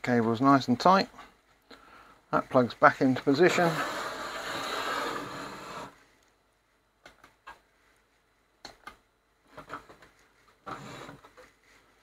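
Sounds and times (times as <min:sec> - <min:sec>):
small clicks and taps: 0:07.0 - 0:07.7, 0:08.6 - 0:09.1.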